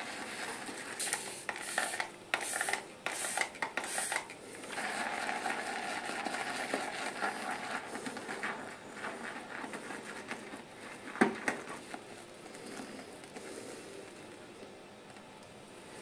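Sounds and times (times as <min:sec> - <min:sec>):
brush swishing lather in bowl: 0:05.3 - 0:11.1.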